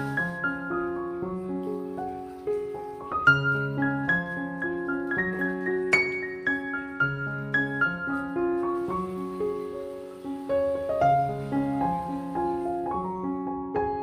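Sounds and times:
slow piano music: 0.0s - 14.0s.

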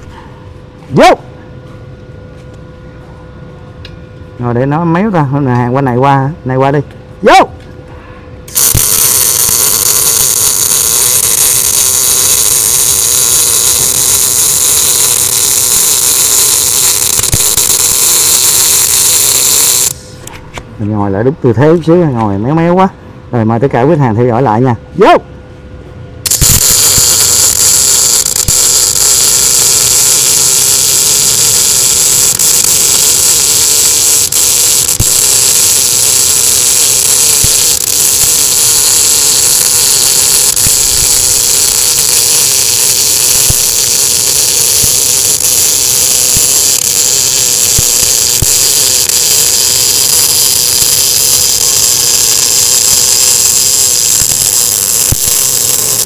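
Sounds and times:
welding arc crackling hiss: 8.5s - 20.4s, 26.2s - 56.0s.

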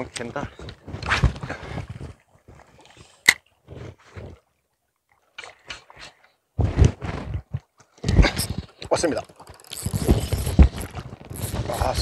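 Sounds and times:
fishing reel handling rustle: 8.4s - 12.0s.

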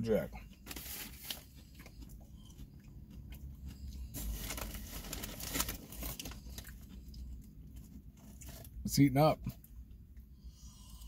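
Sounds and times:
potato chips crunching: 0.5s - 7.1s
foil bag crinkling: 0.6s - 1.4s, 4.1s - 6.8s.

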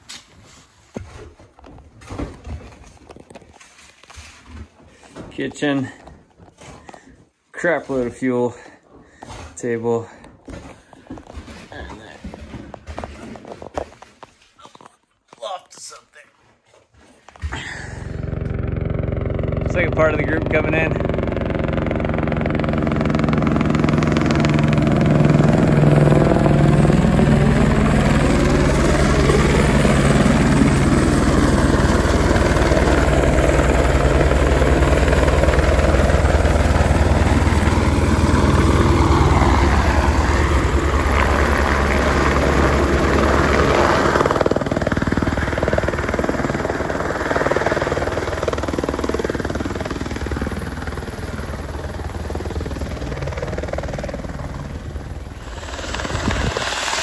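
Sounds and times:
helicopter rotor and engine: 17.5s - 57.0s.

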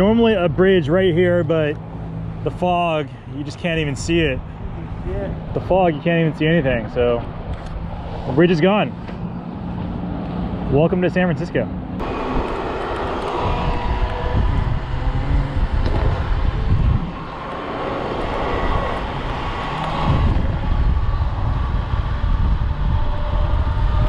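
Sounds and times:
low road rumble: 0.0s - 24.0s
wind buffeting microphone: 12.0s - 24.0s.

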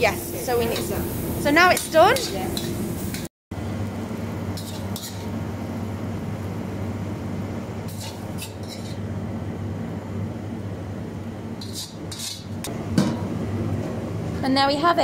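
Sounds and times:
low kitchen hum: 0.0s - 15.0s
metal spatula scraping wok: 1.7s - 3.3s, 4.6s - 5.4s, 7.9s - 9.1s, 11.6s - 12.6s.

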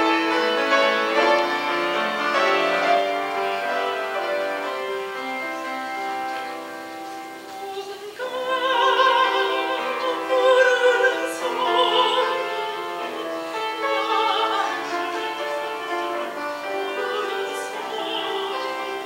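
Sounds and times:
grand piano accompaniment: 0.0s - 19.0s
soprano singing with vibrato: 7.3s - 19.0s.

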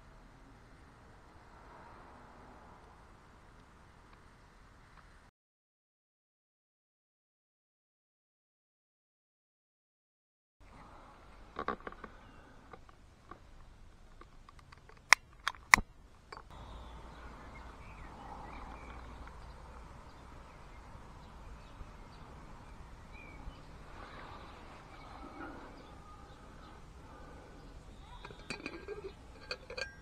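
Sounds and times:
faint birds chirping: 10.6s - 14.5s, 15.8s - 29.8s
sharp metallic clicks: 14.5s - 16.5s.

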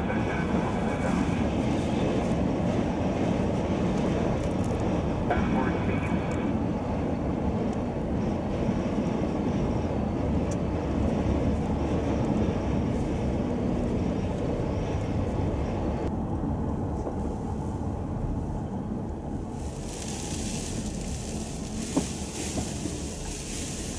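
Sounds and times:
car driving on snowy road: 13.0s - 23.9s.

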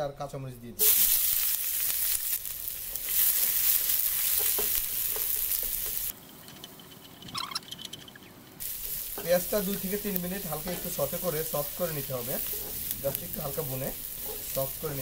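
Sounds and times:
onions sizzling in hot oil: 0.8s - 6.2s, 8.6s - 15.0s.

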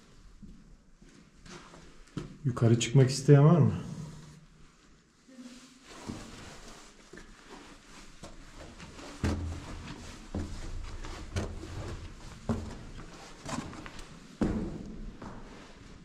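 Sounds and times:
slow heavy footsteps: 6.0s - 16.0s.

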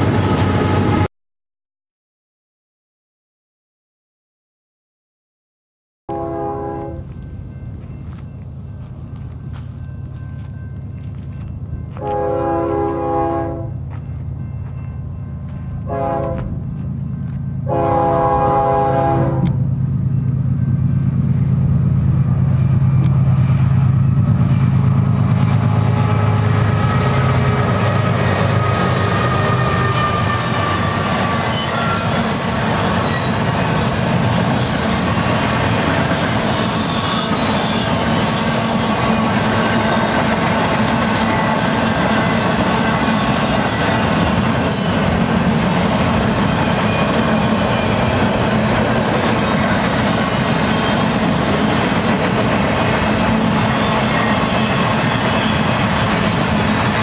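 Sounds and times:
diesel locomotive engine drone: 0.0s - 1.1s, 6.1s - 57.0s
train wheel rumble: 0.0s - 1.1s, 6.1s - 57.0s
wheel squeal: 29.2s - 34.0s, 34.6s - 39.0s, 41.1s - 45.1s, 50.2s - 51.2s, 53.0s - 57.0s.

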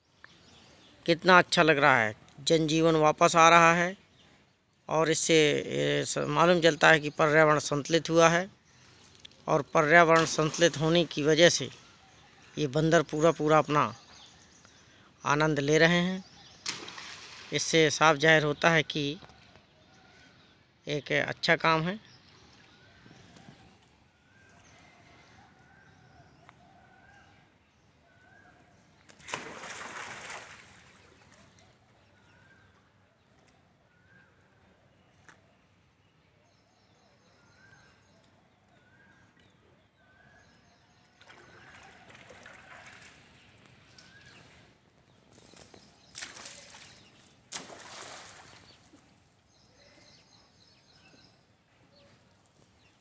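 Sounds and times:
birds calling: 0.0s - 53.0s
loud splash into pond: 16.6s - 17.7s, 29.1s - 31.4s, 41.2s - 43.3s, 46.1s - 49.0s
water sloshing: 16.6s - 17.7s, 29.2s - 31.6s, 41.1s - 44.7s, 45.5s - 49.2s.

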